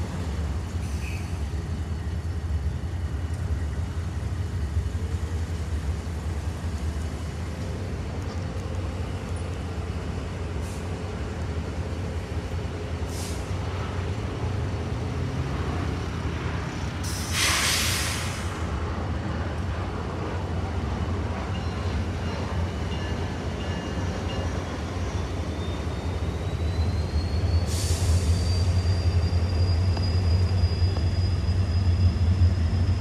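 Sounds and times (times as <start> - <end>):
air hissing: 17.0 - 18.6, 27.6 - 30.2.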